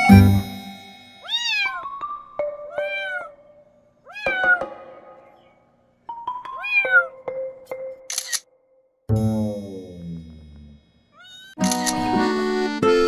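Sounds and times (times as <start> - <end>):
background music with held notes: 0.0 - 8.1, 11.6 - 13.0
kitten meowing: 1.2 - 2.0, 2.7 - 3.4, 4.1 - 4.7, 6.6 - 7.2, 11.2 - 11.6.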